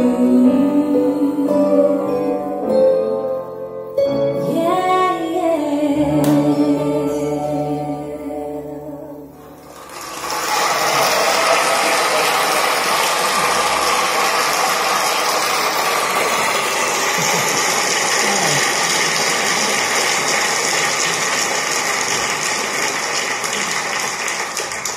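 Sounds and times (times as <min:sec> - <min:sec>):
audience applause: 0:09.6 - 0:24.9.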